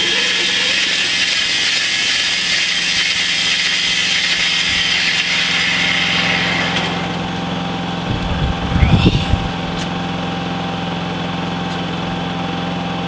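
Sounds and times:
band saw blade cutting log: 0.0 - 10.1
motor humming: 0.0 - 11.9.

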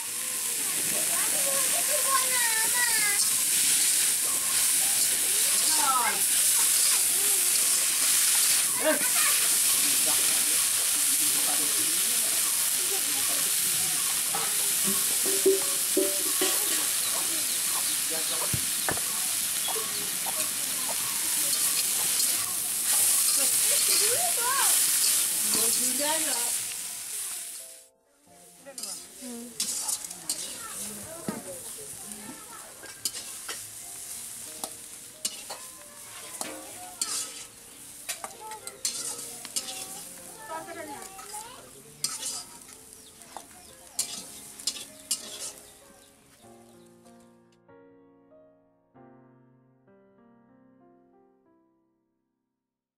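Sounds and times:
greens sizzling in a pan: 0.0 - 46.8
metal spatula scraping a pan: 3.2 - 11.0, 20.4 - 26.8, 28.7 - 31.7, 32.7 - 41.4, 42.0 - 43.2, 43.9 - 45.7
spatula knocking on pan: 14.9 - 16.8.

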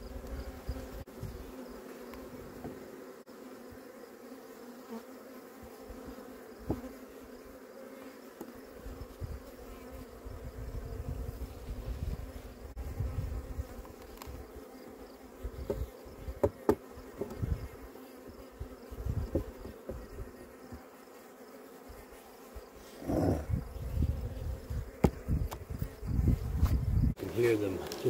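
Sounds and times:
honeybees humming: 0.0 - 28.0
hive cover knocking: 6.6 - 6.9, 15.6 - 17.4.

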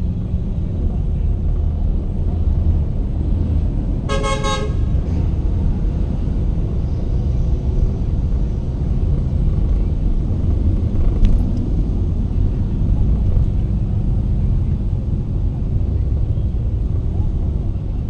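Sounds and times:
road and engine rumble: 0.0 - 18.0
vehicle horn toot: 4.1 - 5.0.

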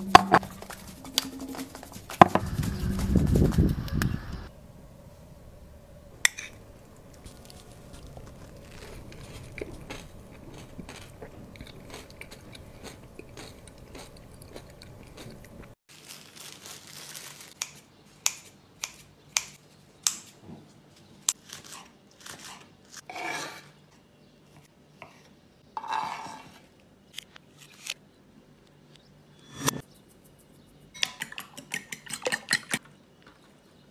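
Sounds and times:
plastic film rustling: 15.9 - 17.6.

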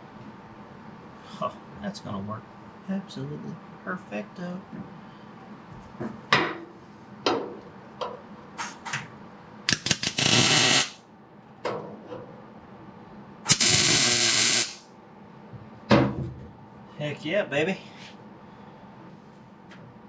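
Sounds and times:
welder bursts: 9.7 - 11.0, 13.5 - 14.9.

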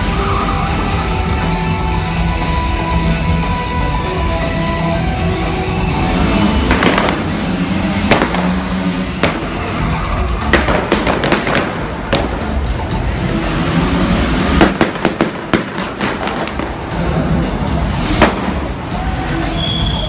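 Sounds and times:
show music: 0.0 - 20.0
pyrotechnic bangs and pops: 6.7 - 9.8, 10.4 - 12.7, 14.4 - 17.0, 18.0 - 18.8.

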